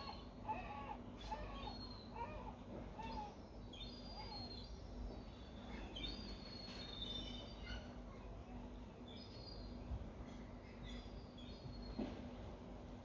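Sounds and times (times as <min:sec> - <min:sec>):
gulls calling: 0:00.0 - 0:04.7
small birds chirping: 0:00.0 - 0:12.0
faint steady hum: 0:00.0 - 0:13.0.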